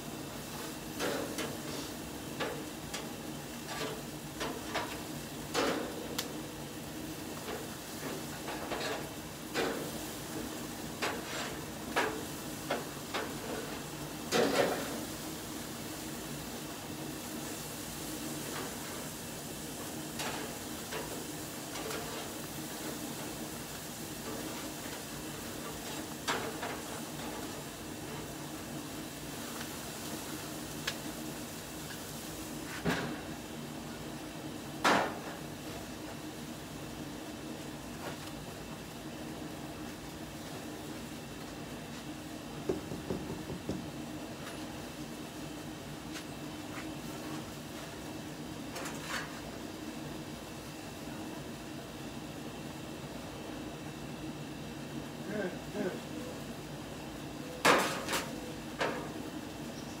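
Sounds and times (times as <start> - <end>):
metal grill lid clunking shut: 57.6 - 59.2.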